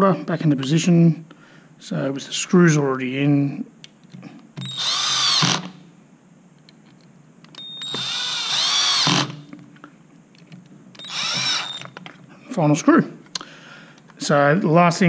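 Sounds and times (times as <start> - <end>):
cordless drill motor whine: 4.6 - 5.8, 7.6 - 9.4, 11.0 - 12.0.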